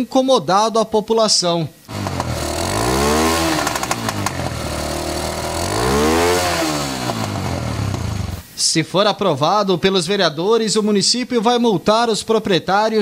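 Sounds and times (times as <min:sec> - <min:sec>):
motorcycle engine revving and idling: 0:01.9 - 0:08.4.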